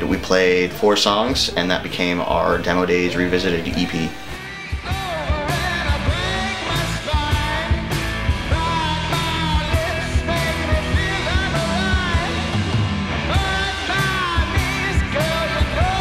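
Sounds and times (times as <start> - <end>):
man singing: 1.2 - 12.6, 13.3 - 16.0
rock band playing: 2.5 - 16.0.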